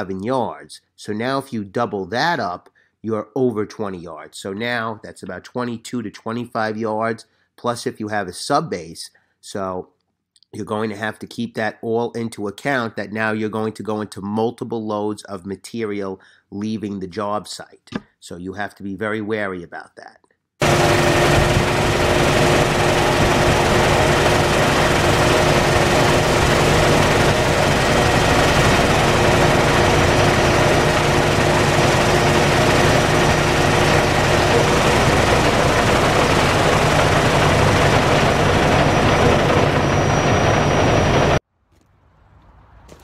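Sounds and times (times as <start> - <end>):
diesel truck engine running: 20.6 - 41.4
steady hums: 20.6 - 41.4.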